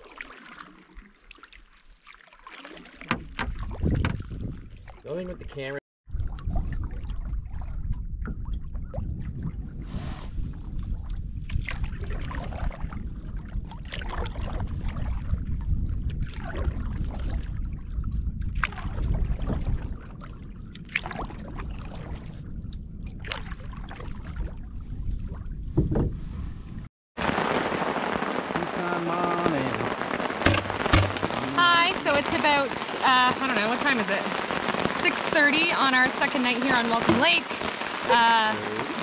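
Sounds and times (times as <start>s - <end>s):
paddle stroke splashing: 0.0s - 5.1s, 30.0s - 32.8s, 33.4s - 39.0s
wind rumbling on microphone: 3.1s - 39.0s
rain falling on a tarp: 27.2s - 39.0s.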